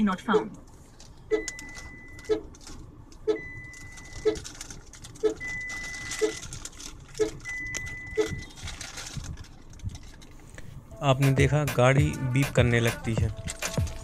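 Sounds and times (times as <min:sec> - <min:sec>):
higher steady warning tone: 0:01.3 - 0:02.5, 0:03.2 - 0:04.4
short warning beeps: 0:07.2 - 0:08.5.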